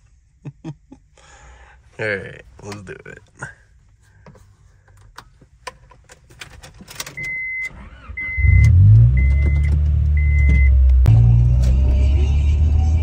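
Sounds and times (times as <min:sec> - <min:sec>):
keys and ignition clicking: 0:04.9 - 0:08.0
car engine starting and idling: 0:04.9 - 0:13.0
car engine accelerating: 0:07.8 - 0:13.0.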